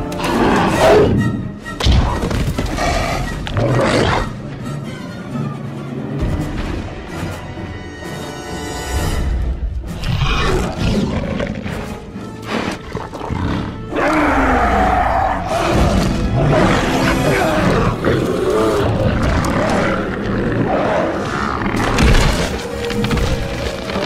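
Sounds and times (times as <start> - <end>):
dramatic film music: 0.0 - 24.0
creature roars and snarls: 12.6 - 22.6.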